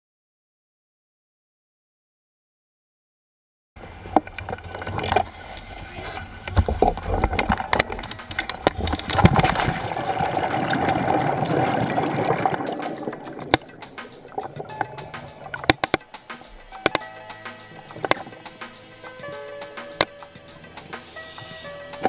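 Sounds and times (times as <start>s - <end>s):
underwater churning bubbles: 3.8s - 16.0s
sharp clicks and pops: 6.4s - 17.1s, 17.9s - 18.5s, 19.8s - 20.2s.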